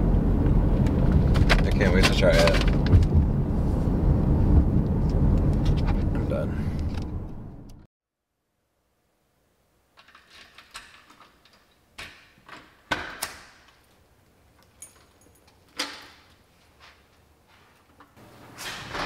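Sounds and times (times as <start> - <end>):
lock and handle clicks: 10.0 - 13.9
keys jangling: 14.6 - 16.2.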